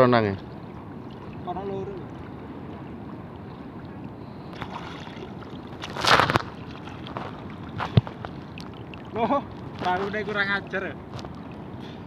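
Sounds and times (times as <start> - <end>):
sea water sloshing and lapping: 0.0 - 12.0
loud splash: 4.6 - 7.3.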